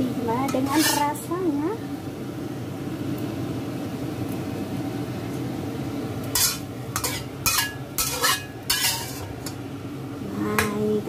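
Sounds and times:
low steady hum: 0.0s - 11.0s
metal spatula scraping in wok: 0.4s - 1.3s, 6.3s - 9.6s.

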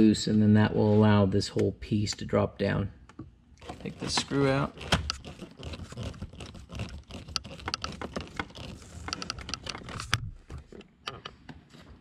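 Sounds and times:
screwdriver clicking and scraping: 3.6s - 10.3s.

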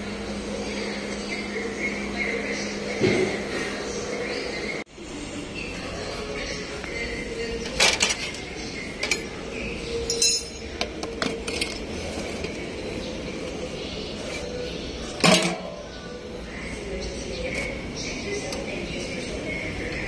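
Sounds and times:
metal tools clinking: 10.0s - 11.8s.

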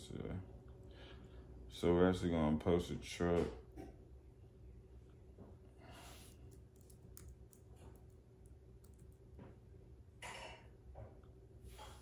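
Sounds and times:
computer keyboard typing: 6.6s - 8.2s, 8.8s - 9.2s.

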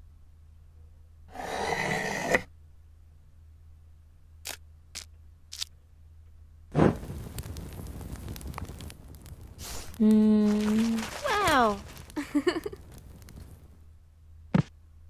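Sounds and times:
rustling scrape: 1.3s - 2.5s, 9.6s - 12.2s.

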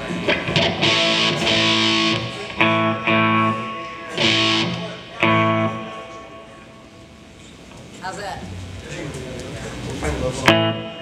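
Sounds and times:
electric guitar chords ringing: 0.0s - 7.4s, 10.4s - 11.0s.

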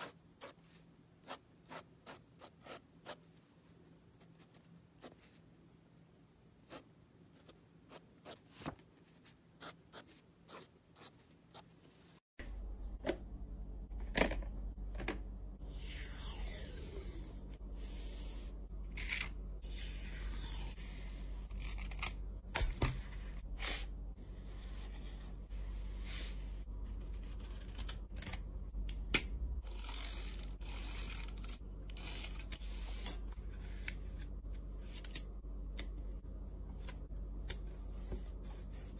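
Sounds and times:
steady low hum: 12.4s - 38.9s
hands working art materials: 29.1s - 38.9s.

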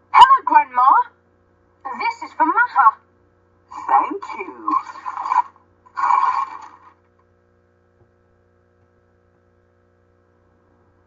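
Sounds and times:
faint electrical hum: 0.0s - 11.0s
recorded speech: 0.1s - 1.1s, 1.9s - 3.0s, 3.7s - 5.5s.

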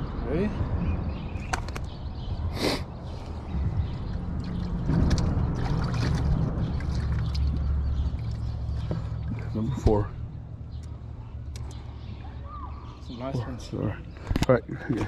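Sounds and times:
steady low rumble: 0.0s - 14.7s
water splashing and trickling: 3.8s - 12.0s.

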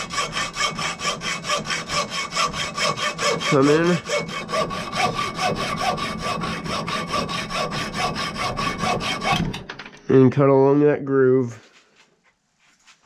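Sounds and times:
hacksaw cutting metal: 0.0s - 9.7s.

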